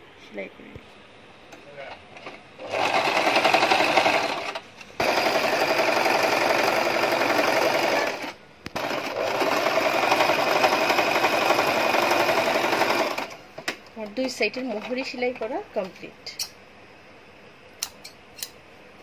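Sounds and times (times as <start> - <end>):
electric sewing machine stitching: 2.2 - 13.4.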